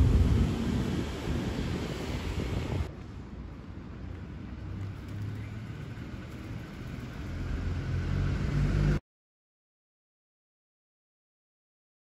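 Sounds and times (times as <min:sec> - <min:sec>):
street ambience: 0:00.0 - 0:09.0
vehicle engine rumble passing: 0:04.5 - 0:09.0.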